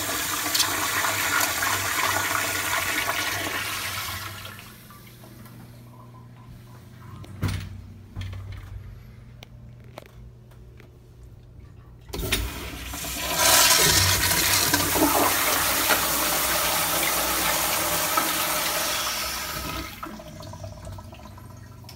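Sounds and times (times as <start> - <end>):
toilet flushing: 0.0 - 5.3, 12.1 - 21.9.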